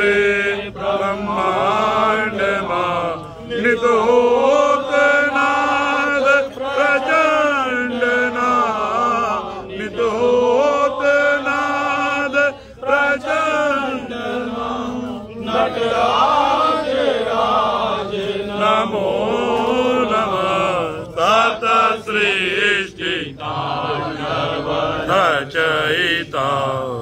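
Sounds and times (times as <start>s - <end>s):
man chanting a hymn: 0.0s - 27.0s.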